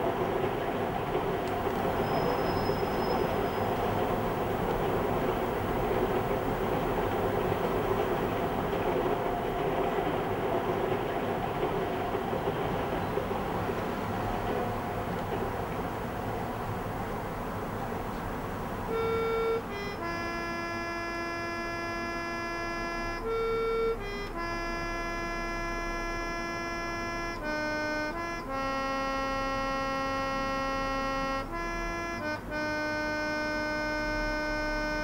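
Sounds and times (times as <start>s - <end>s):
steady low hum: 0.0s - 20.6s
low hiss: 0.0s - 23.7s
slow keyboard music: 0.0s - 35.0s.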